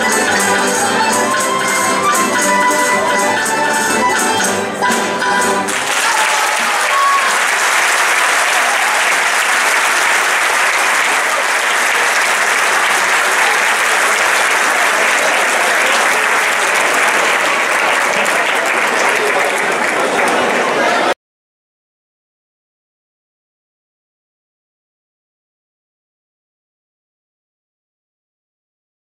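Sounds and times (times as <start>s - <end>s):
guitar ensemble music: 0.0s - 21.1s
audience applause: 5.7s - 21.2s.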